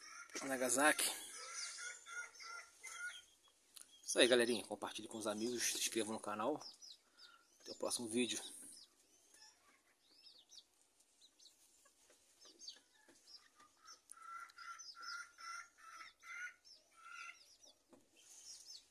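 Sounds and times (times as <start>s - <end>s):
hen clucking: 0.0s - 7.0s, 11.2s - 18.8s
hens chirping: 0.0s - 18.9s.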